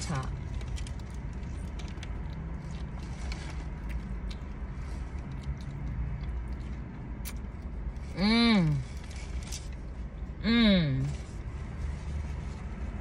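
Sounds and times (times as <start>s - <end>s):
low steady rumble: 0.0s - 13.0s
person chewing: 0.7s - 8.1s.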